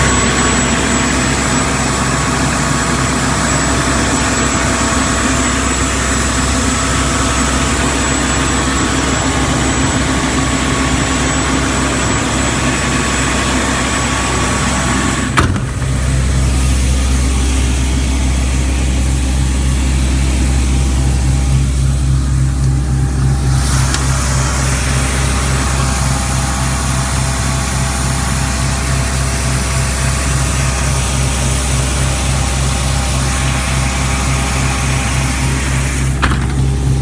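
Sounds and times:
air compressor engine drone: 0:00.0 - 0:37.0.

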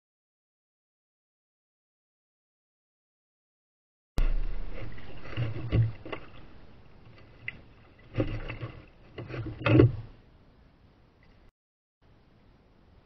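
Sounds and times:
kayak hull bumping and scraping: 0:04.2 - 0:10.2.

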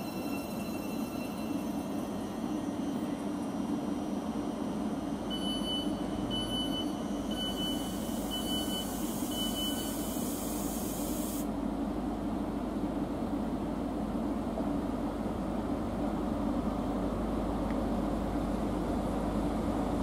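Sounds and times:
rail noise: 0:00.0 - 0:20.0
train diesel engine drone: 0:00.0 - 0:20.0
short high beeps: 0:05.3 - 0:10.1.

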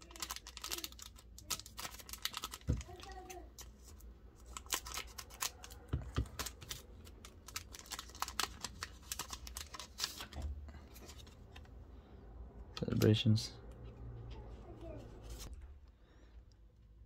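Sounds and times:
foil wrapper crinkling: 0:00.0 - 0:03.7, 0:04.4 - 0:11.4.

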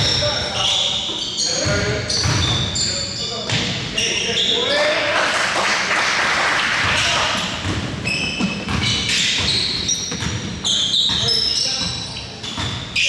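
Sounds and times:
sneaker squeaks: 0:00.0 - 0:05.0, 0:07.3 - 0:13.0
players' voices: 0:00.0 - 0:07.8, 0:11.0 - 0:13.0.

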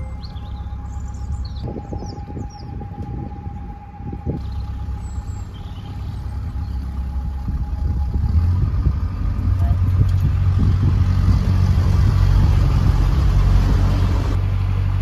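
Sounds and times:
bird chirps: 0:00.0 - 0:02.9, 0:04.4 - 0:07.1
boat engine rumble: 0:00.0 - 0:15.0.

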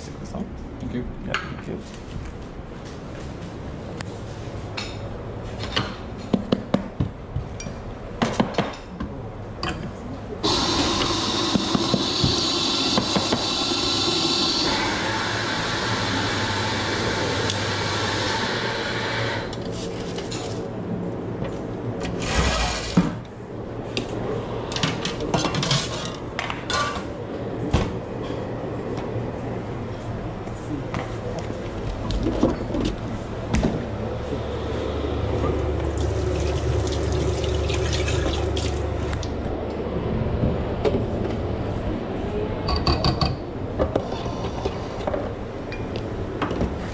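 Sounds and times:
espresso machine steam wand hissing: 0:10.4 - 0:19.5.

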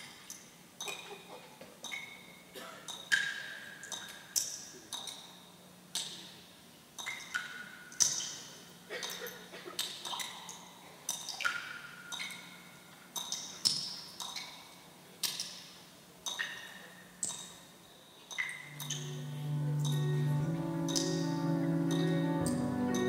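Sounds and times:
faint low hum: 0:18.6 - 0:23.0
sustained low tone: 0:18.7 - 0:23.0.

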